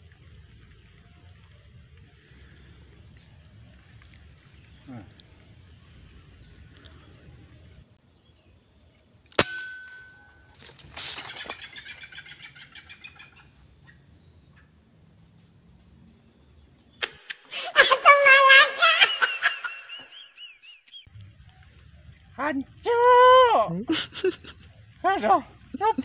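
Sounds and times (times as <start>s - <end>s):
high insect drone: 2.3s - 17.2s
air rifle shot: 9.3s - 10.2s
rustling in brush: 10.4s - 12.4s.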